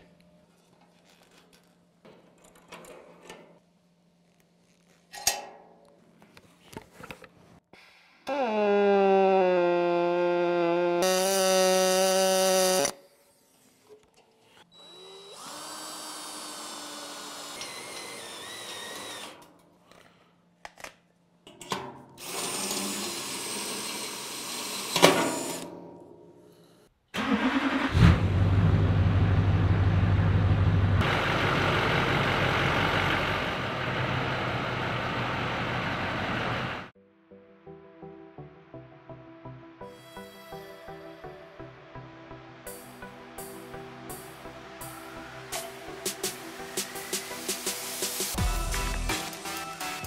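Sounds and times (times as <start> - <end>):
diesel engine cranking and idling: 27.2 - 36.9.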